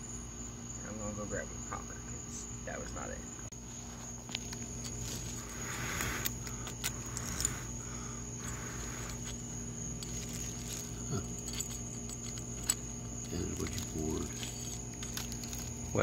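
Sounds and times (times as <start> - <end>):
steady background hum: 0.0 - 16.0
tongs clicking and scraping metal: 4.3 - 16.0.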